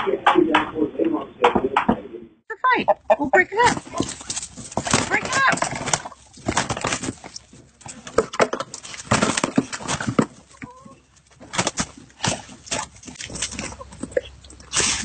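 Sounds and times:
scuffling and wing flapping: 3.1 - 15.0.

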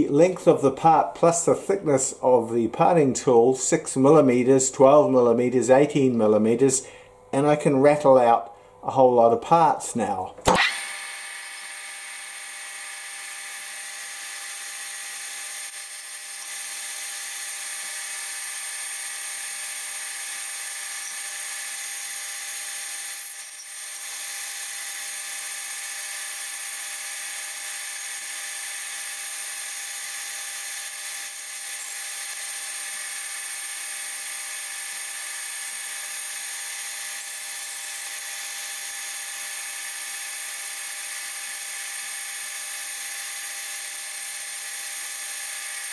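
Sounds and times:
lathe machine whine: 10.5 - 45.9.

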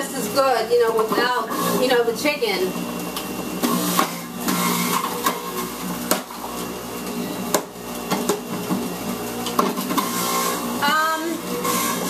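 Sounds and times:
juicer motor running: 0.0 - 12.0
knocks in juicer cutter: 6.0 - 6.3, 7.5 - 8.8.

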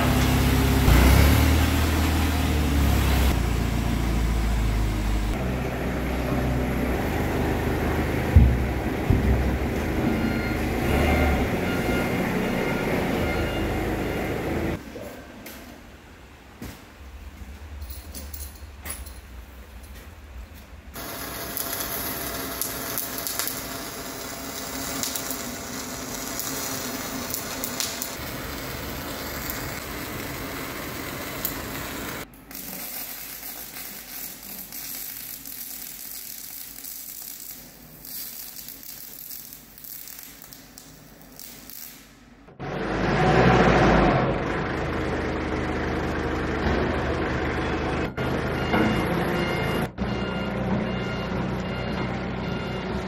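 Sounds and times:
welding arc: 21.0 - 42.2.

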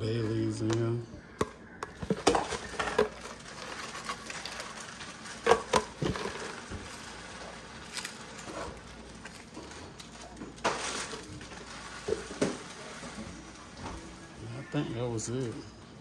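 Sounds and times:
bay leaves rattling in container: 2.2 - 13.1.

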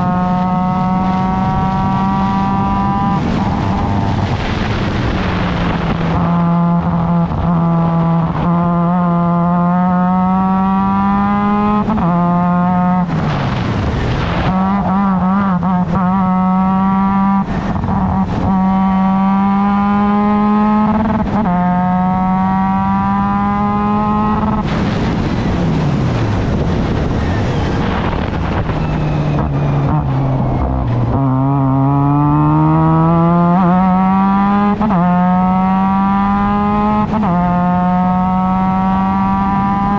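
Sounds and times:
race car engine revving through gears: 0.0 - 39.9.

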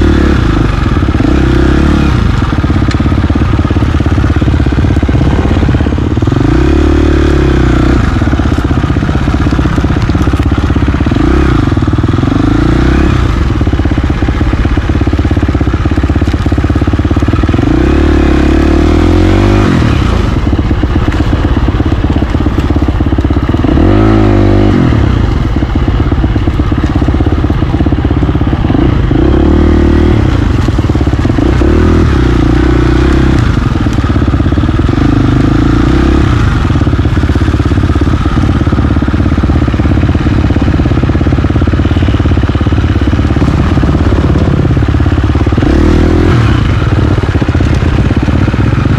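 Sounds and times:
dirt bike engine revving: 0.0 - 48.9.

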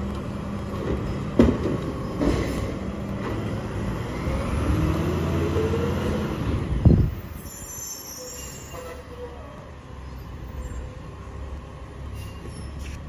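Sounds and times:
garbage truck engine accelerating: 0.0 - 7.5.

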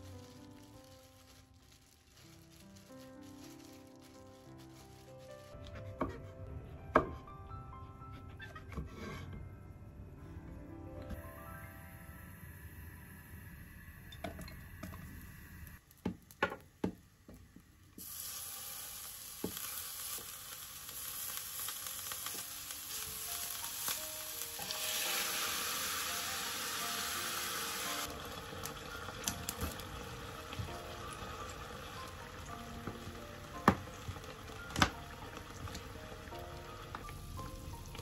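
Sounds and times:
peppers sizzling in oil: 0.0 - 5.6, 18.0 - 38.0.

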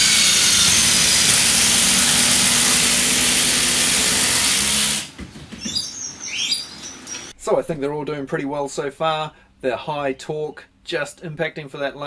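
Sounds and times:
impact drivers hammering: 0.0 - 5.2.

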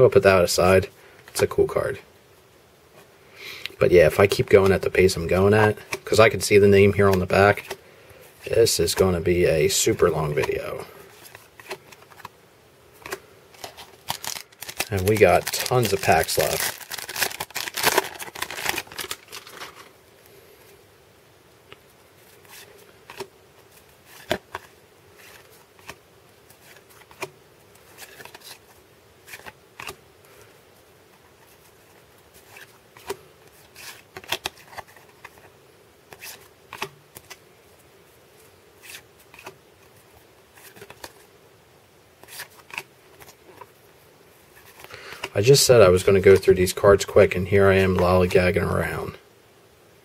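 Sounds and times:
cards flipped by hand: 10.3 - 12.3, 13.0 - 19.9, 22.2 - 30.0, 32.4 - 35.5, 36.1 - 37.4, 42.2 - 43.7.

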